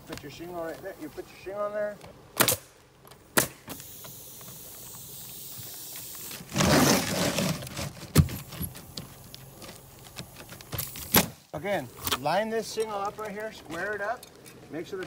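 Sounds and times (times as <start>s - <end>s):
pneumatic nailer shot: 2.4s - 2.7s, 3.3s - 8.5s, 10.7s - 11.4s
rough scraping rustle: 4.4s - 15.0s.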